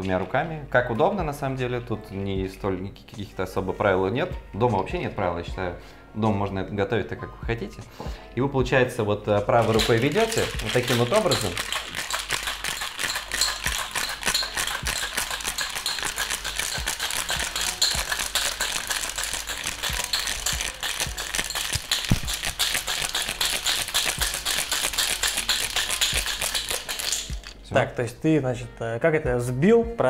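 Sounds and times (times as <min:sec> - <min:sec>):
ice rattling in metal shaker: 0:09.6 - 0:27.7.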